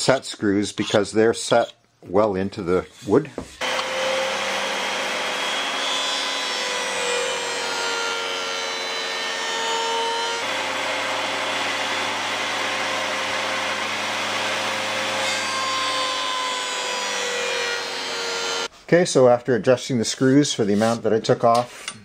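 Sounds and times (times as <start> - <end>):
jointer whirring and cutting: 3.6 - 18.7.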